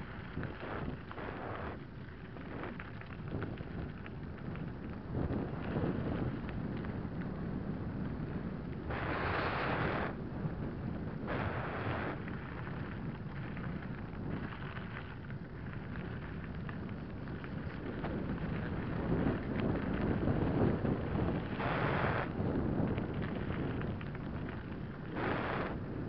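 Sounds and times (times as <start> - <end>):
wind buffeting microphone: 0.0 - 26.0
bursts of hiss: 8.9 - 10.2, 25.1 - 25.8.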